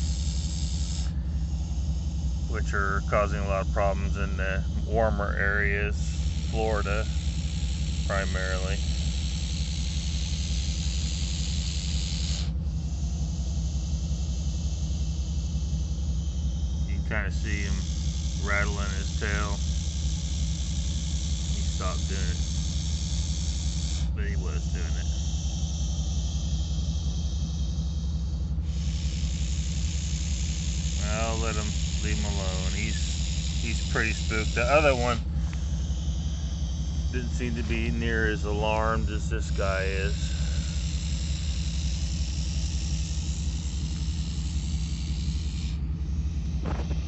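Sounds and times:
vehicle engine idling: 0.0 - 47.0
even hiss: 31.0 - 35.2.

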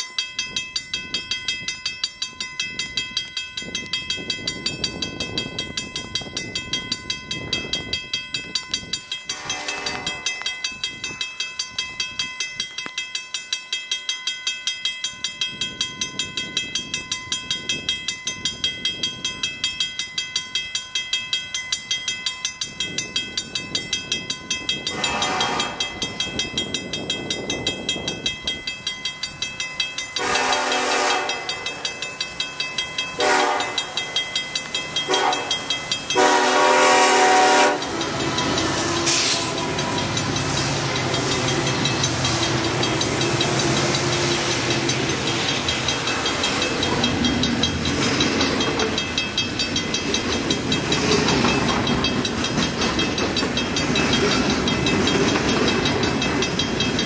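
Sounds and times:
freight train passing: 0.0 - 57.0
locomotive air horn blasts: 9.3 - 10.4, 24.9 - 25.8, 30.2 - 31.5, 33.2 - 33.9, 35.1 - 35.5, 36.2 - 38.0.

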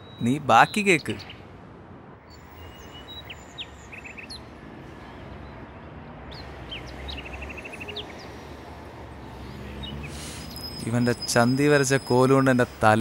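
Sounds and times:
small birds chirping: 2.2 - 5.7, 6.3 - 12.6.

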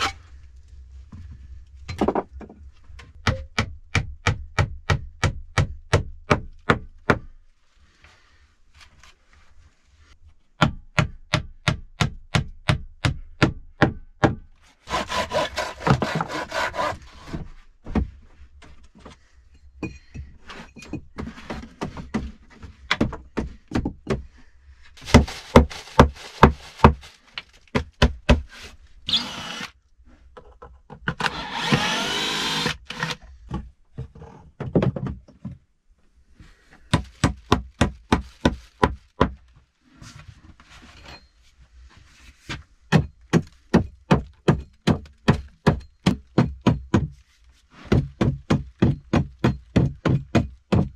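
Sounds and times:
plastic bag rustling: 25.0 - 27.7.

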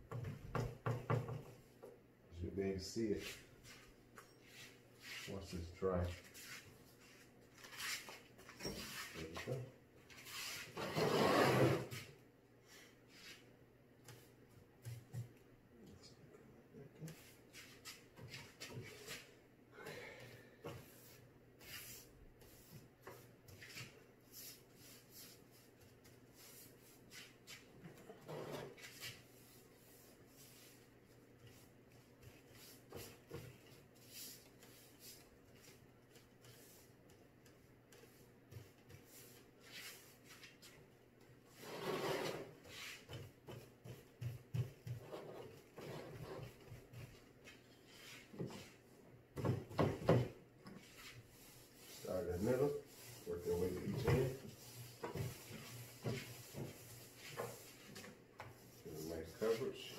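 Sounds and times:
paintbrush brushing on wood: 2.8 - 9.6, 10.2 - 10.8, 17.0 - 19.4, 20.7 - 40.9, 41.5 - 49.0, 50.6 - 59.9.

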